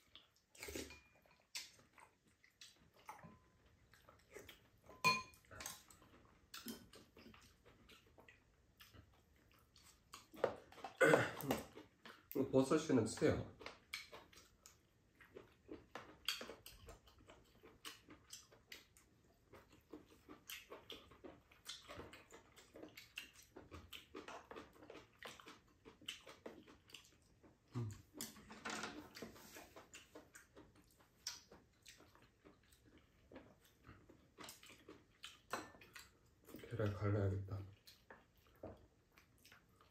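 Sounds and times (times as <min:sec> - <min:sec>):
chewing and slurping: 0:00.0 - 0:12.5, 0:13.4 - 0:39.9
chopsticks and spoons clicking on bowls: 0:00.6 - 0:01.7, 0:04.9 - 0:05.8.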